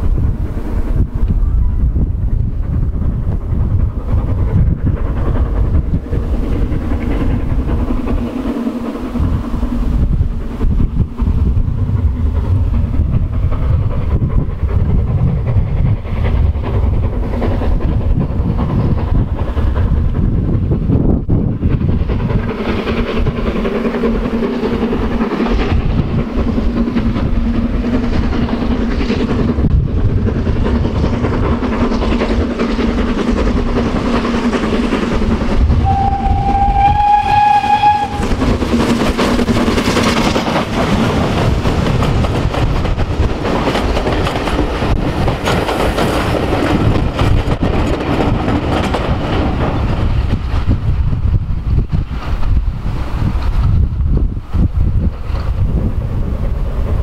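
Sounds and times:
steam locomotive passing: 0.0 - 57.0
steam whistle blast: 35.8 - 38.3.

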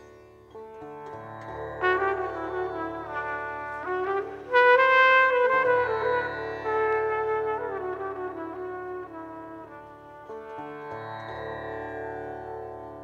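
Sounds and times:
trumpet playing held notes: 1.8 - 10.9.

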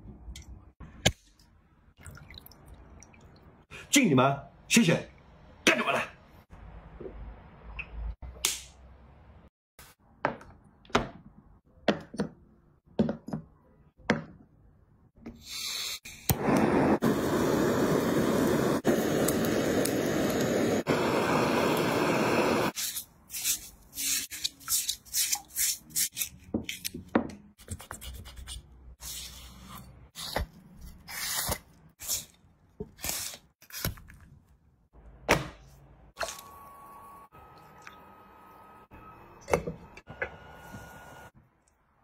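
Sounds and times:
blowtorch flame hissing: 15.5 - 22.8.

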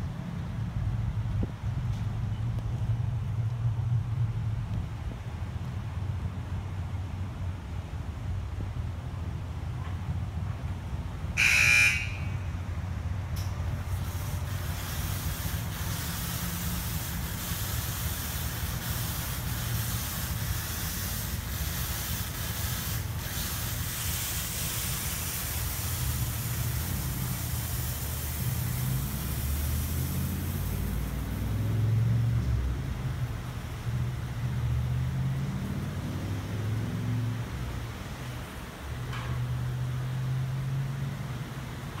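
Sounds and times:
car wash spraying water: 11.0 - 42.0.

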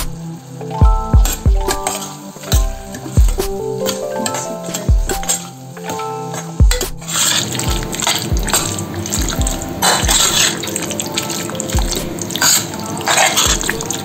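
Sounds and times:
background music with beat: 0.0 - 14.0
food sizzling in pot: 0.1 - 14.0
spoon stirring and scraping pot: 7.0 - 14.0.

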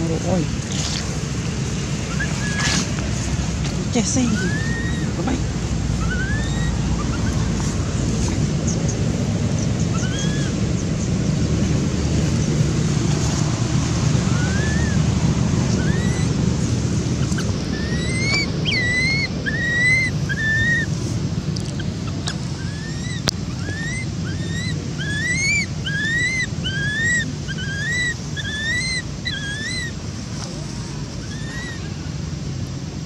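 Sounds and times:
wind rumble on microphone: 0.0 - 28.4
infant monkey whimpering: 2.1 - 2.9, 3.8 - 8.7, 9.9 - 10.6, 14.2 - 15.1, 15.7 - 16.6, 17.2 - 20.9, 21.7 - 32.3.

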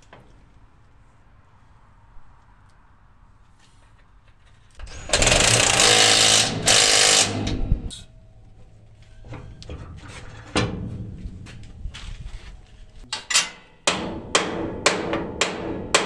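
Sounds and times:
power tool hammering bolt: 4.8 - 7.9.

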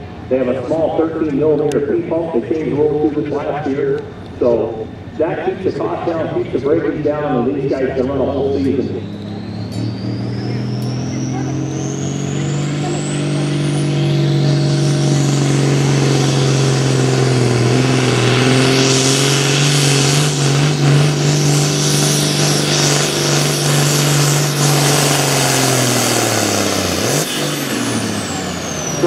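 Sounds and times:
diesel tractor engine under load: 0.0 - 29.0
high turbo whistle: 8.1 - 29.0.

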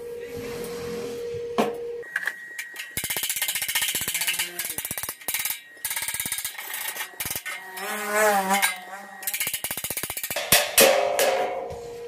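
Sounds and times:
wavering pitched ring: 0.0 - 10.4
wire brush scrubbing metal: 2.7 - 10.5.

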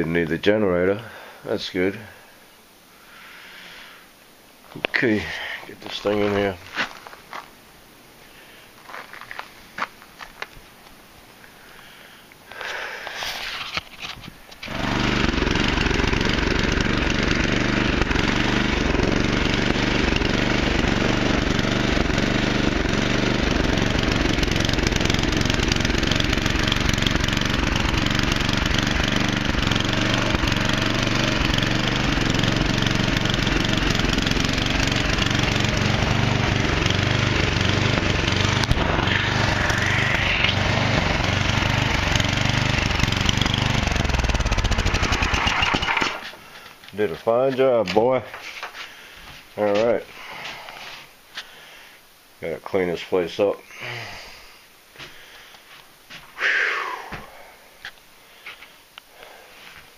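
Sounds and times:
snowblower engine running: 14.6 - 48.8.

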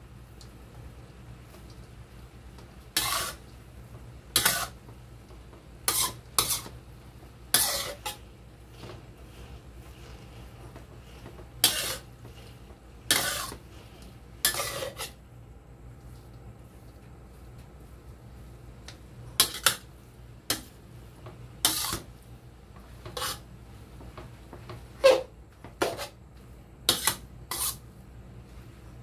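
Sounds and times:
low steady hum: 0.0 - 29.0
metal spatula scraping wok: 2.9 - 3.5, 4.3 - 4.8, 5.8 - 6.8, 7.5 - 15.2, 19.3 - 19.9, 21.6 - 22.2, 22.9 - 23.5, 25.0 - 26.2, 26.9 - 27.9.

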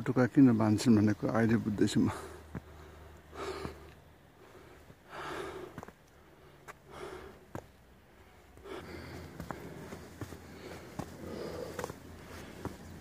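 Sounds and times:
person breathing hard: 2.1 - 7.7, 8.6 - 13.0
footsteps on rock: 2.5 - 2.9, 5.7 - 6.8, 7.5 - 7.8, 8.6 - 13.0.

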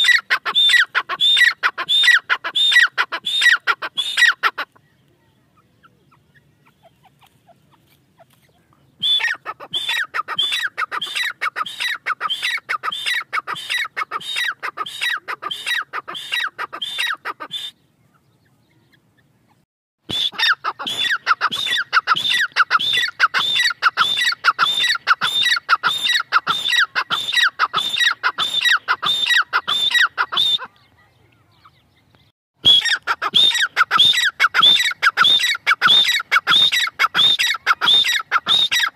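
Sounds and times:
francolin calling shrill notes: 32.6 - 38.9.

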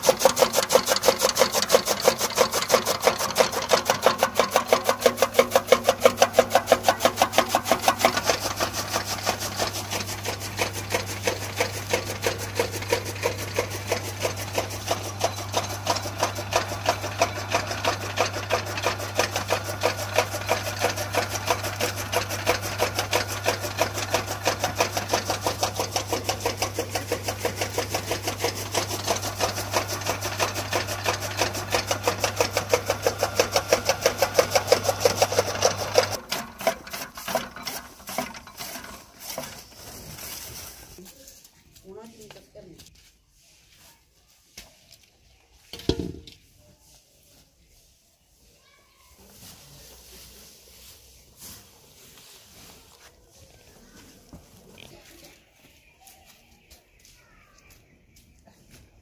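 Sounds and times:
electric motor hum: 0.0 - 36.2
blades chopping fodder clacking: 0.0 - 39.6.

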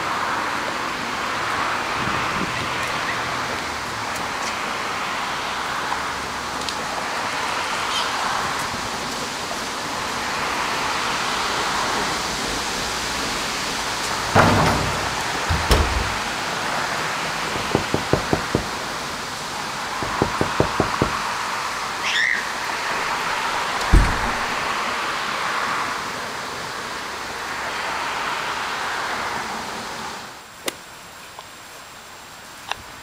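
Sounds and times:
sharp thumps: 14.2 - 16.5, 23.0 - 24.7.

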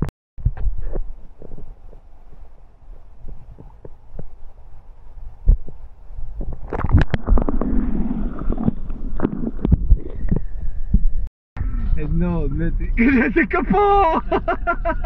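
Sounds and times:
water sloshing and gurgling: 5.4 - 11.3
knocks and splashes: 6.4 - 10.5.

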